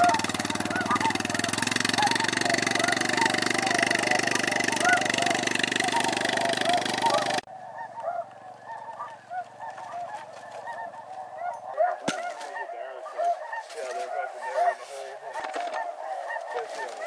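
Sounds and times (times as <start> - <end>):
loud steady drone: 0.0 - 7.5
geese honking: 0.0 - 17.0.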